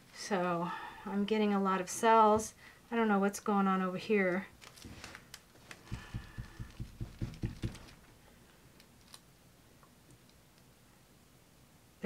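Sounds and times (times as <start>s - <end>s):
gloved hands patting table: 5.7s - 8.1s.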